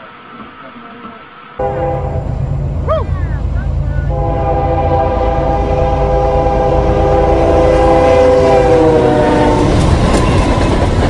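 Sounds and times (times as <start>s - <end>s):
passing train clatter: 0.3s - 11.0s
locomotive air horn: 1.6s - 2.5s, 4.0s - 9.8s
locomotive rumbling: 1.6s - 11.0s.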